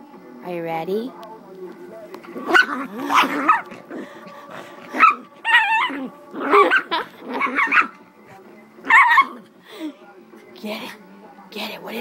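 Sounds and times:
dog growling and barking: 0:02.2 - 0:08.0, 0:08.8 - 0:09.5.

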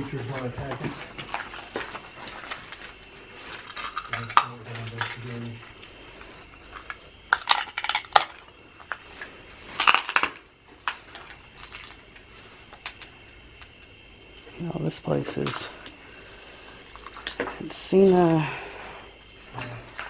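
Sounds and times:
footsteps crunching on broken glass: 0:00.0 - 0:13.0
debris clattering: 0:00.0 - 0:13.8.

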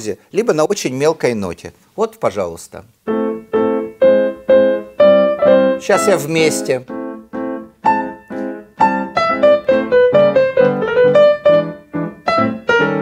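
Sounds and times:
jazz piano: 0:03.0 - 0:13.0.

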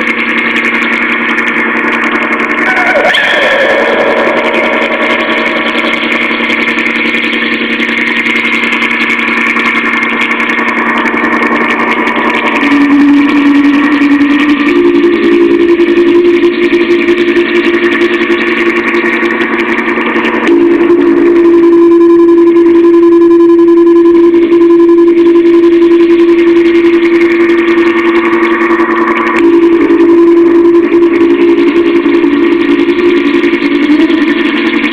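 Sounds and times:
loud steady drone: 0:00.0 - 0:34.9
strong low tone: 0:01.8 - 0:17.2.

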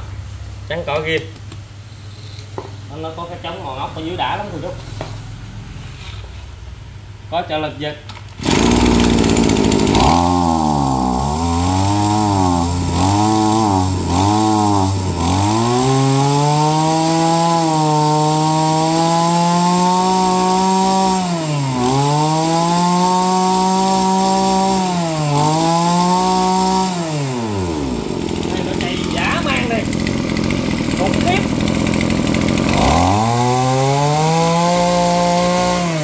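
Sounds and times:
brush cutter engine revving: 0:08.4 - 0:36.0.

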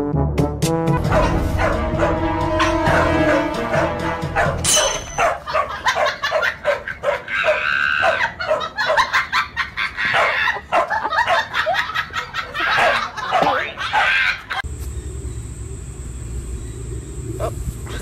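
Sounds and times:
dog yapping: 0:01.1 - 0:03.8, 0:04.4 - 0:09.1, 0:10.0 - 0:11.5, 0:12.6 - 0:14.6.

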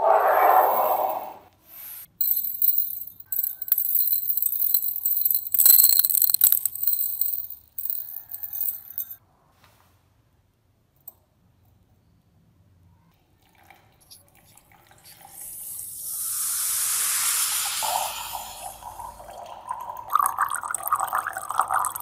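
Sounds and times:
granules poured into glass beaker: 0:02.1 - 0:09.2, 0:16.4 - 0:22.0.

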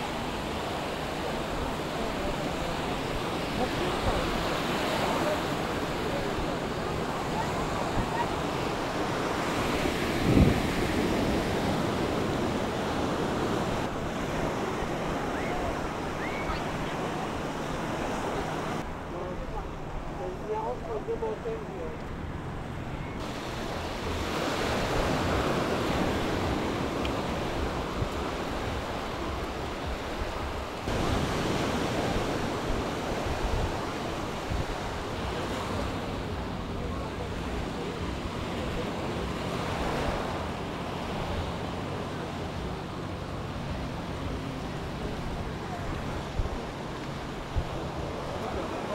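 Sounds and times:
wind buffeting microphone: 0:00.0 - 0:18.9
small waves washing on shore: 0:00.0 - 0:48.9.

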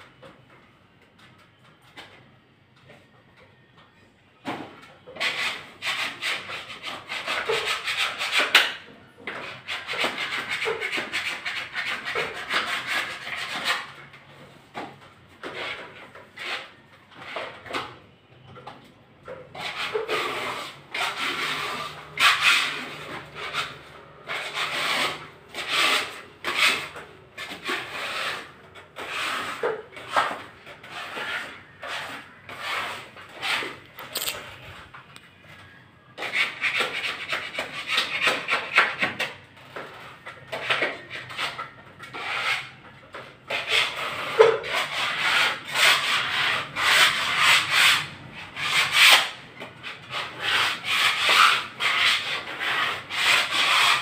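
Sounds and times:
scraper rasping against wall: 0:05.1 - 0:14.6, 0:15.3 - 0:18.0, 0:19.2 - 0:34.7, 0:35.6 - 0:54.0.

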